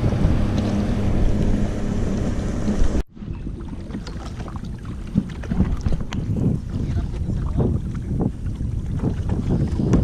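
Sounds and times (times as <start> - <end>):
wind buffeting microphone: 0.0 - 10.0
paddle splashes and drips: 0.5 - 10.0.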